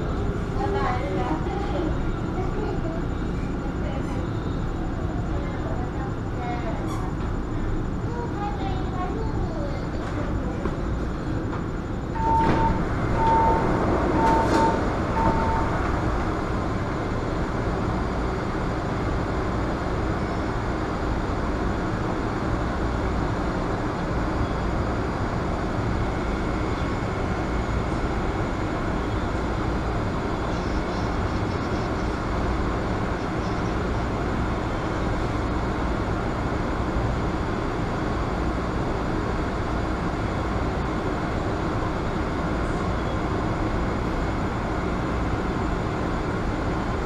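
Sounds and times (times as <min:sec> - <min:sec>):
metro train rumbling: 0:00.0 - 0:47.0.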